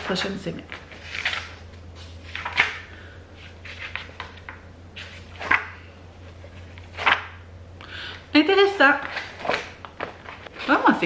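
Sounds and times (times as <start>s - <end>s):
paper pages rustling: 0.0s - 2.8s, 3.4s - 7.3s, 9.0s - 11.0s
steady low hum: 0.0s - 11.0s.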